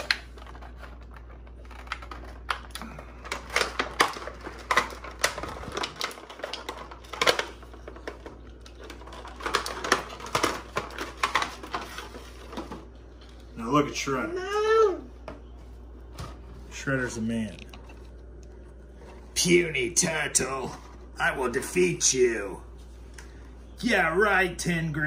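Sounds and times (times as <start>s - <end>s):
plastic packaging crackling: 0.0s - 13.5s.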